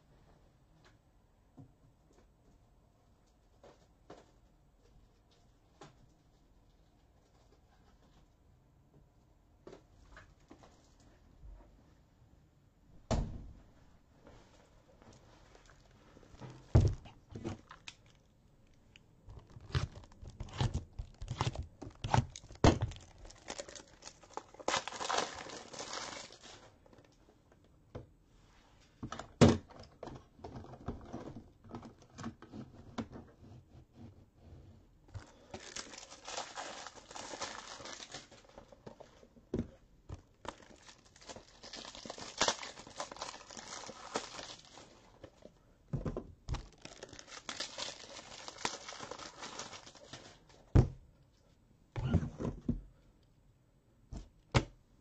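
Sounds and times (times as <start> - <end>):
shrink wrap crinkling and tearing: 17.4 - 27.1, 35.2 - 39.0, 40.2 - 45.5, 46.5 - 50.5.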